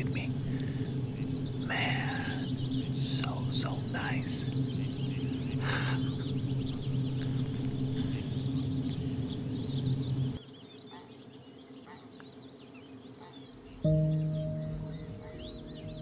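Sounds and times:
steady low hum: 0:00.0 - 0:10.4, 0:13.8 - 0:16.0
songbirds singing: 0:00.0 - 0:16.0.

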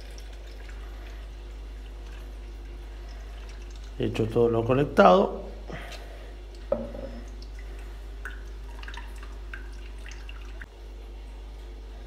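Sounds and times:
water dripping into a container: 0:00.0 - 0:04.3, 0:05.9 - 0:10.7
steady low hum: 0:00.0 - 0:12.0.

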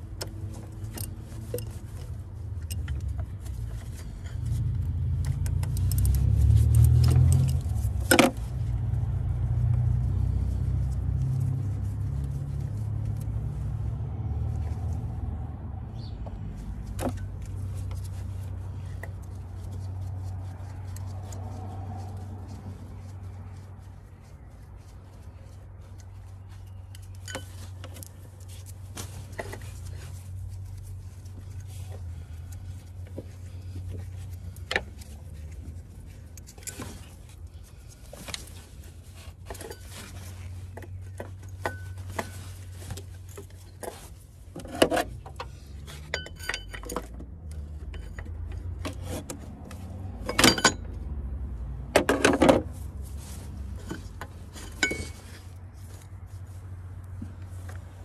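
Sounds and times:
metal hand tools clinking: 0:45.9 - 0:48.4, 0:50.2 - 0:50.9, 0:53.8 - 0:55.4.

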